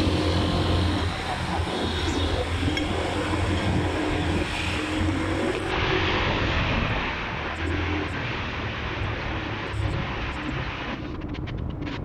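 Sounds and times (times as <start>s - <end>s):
road noise: 0.0s - 12.0s.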